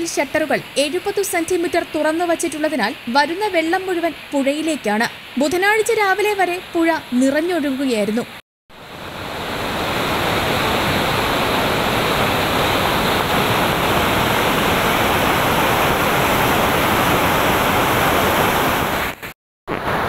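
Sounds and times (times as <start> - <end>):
floodwater rushing through rapids: 8.8 - 19.2.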